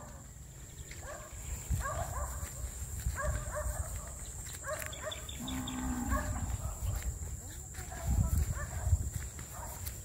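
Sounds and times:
footsteps on dirt path: 0.0 - 10.0.

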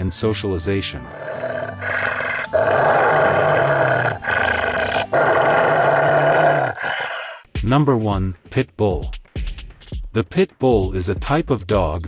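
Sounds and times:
dog growling: 1.0 - 7.4.

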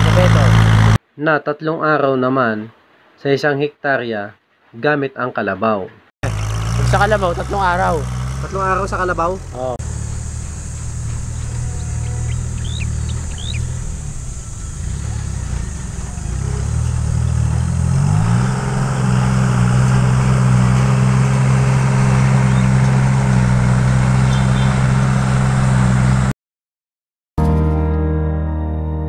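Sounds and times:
tractor engine running: 0.0 - 1.0, 6.2 - 26.3.

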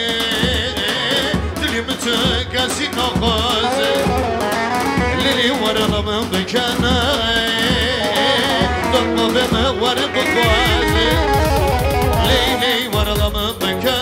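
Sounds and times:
steady drum beat: 0.0 - 14.0
wavering folk melody: 7.9 - 14.0.

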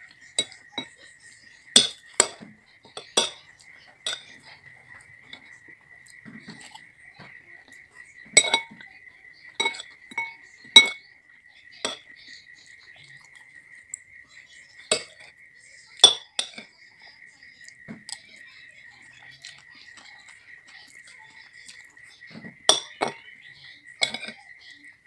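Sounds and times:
cutlery clinking on ceramic bowl: 0.4 - 1.0, 1.8 - 4.4, 8.3 - 8.8, 9.6 - 11.0, 11.8 - 12.0, 14.9 - 15.3, 16.0 - 16.7, 22.3 - 23.2, 24.0 - 24.4.

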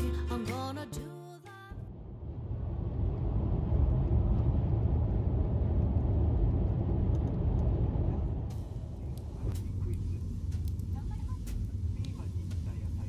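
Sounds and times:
music playing: 0.0 - 1.6
road and tyre noise in car: 1.8 - 13.0.

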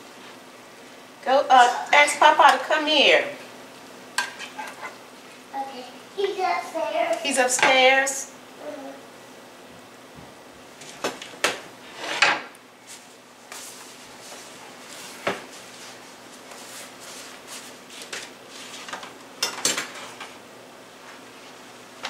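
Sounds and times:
utensils and dishes clinking: 19.4 - 20.4.

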